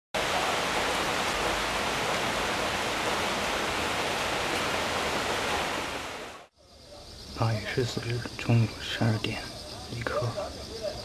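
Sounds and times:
rain falling: 0.2s - 6.5s.

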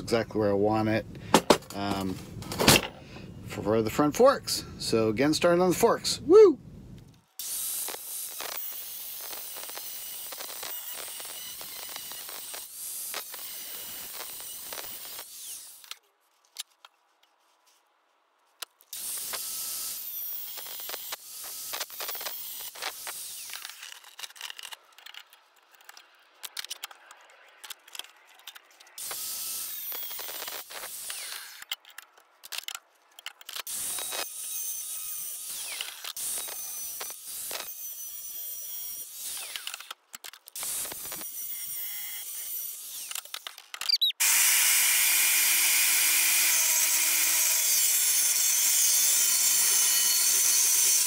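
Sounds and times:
angle grinder cutting steel: 7.4s - 16.0s, 18.9s - 24.8s, 26.9s - 31.9s, 33.6s - 40.0s, 40.6s - 51.0s.

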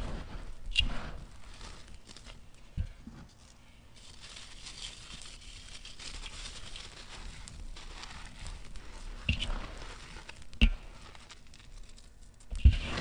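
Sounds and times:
gritty sand crunching: 6.9s - 11.8s, 12.5s - 13.0s.

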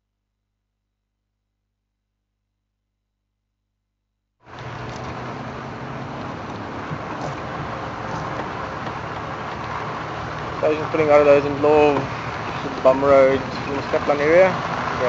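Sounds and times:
road noise: 4.4s - 15.0s
vehicle engine hum on dirt track: 4.4s - 15.0s.

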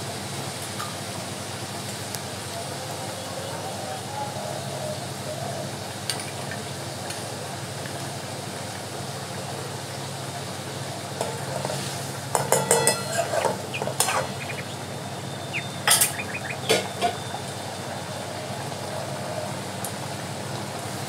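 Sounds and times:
curry sizzling: 8.3s - 18.5s
metal spoon scraping a pan: 11.2s - 14.4s.

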